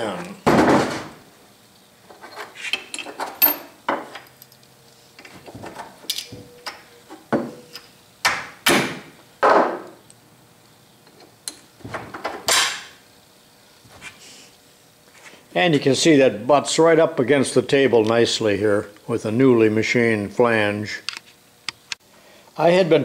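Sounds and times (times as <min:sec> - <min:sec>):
metal knocks on wooden workbench: 0:08.2 - 0:09.9.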